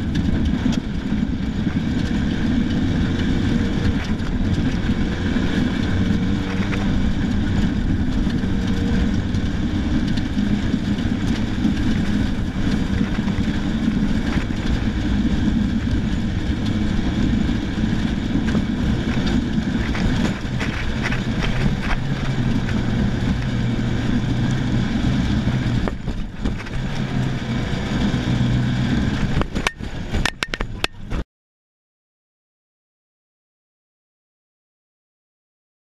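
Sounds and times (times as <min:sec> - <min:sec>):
car engine under load: 0:00.0 - 0:31.2
road and wind noise: 0:00.0 - 0:31.2.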